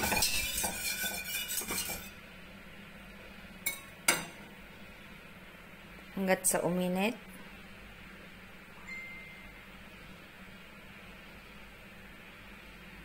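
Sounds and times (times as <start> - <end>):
utensil scraping metal pot: 0.0 - 2.2.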